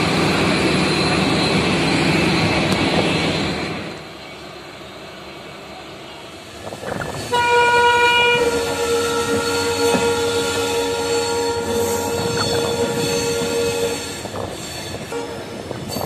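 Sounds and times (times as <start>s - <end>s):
train rolling on track: 0.0s - 16.0s
locomotive horn blast: 7.3s - 14.2s.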